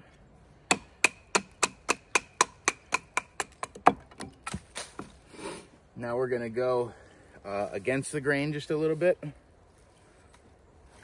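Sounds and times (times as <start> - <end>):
stick splitting: 0.7 - 5.2.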